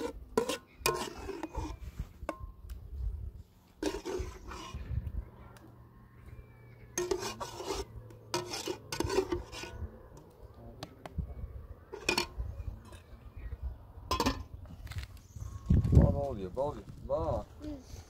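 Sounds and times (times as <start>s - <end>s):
metal ladle scraping pot: 0.0s - 2.4s, 3.8s - 4.9s, 6.9s - 10.0s, 11.9s - 13.1s, 14.1s - 14.6s.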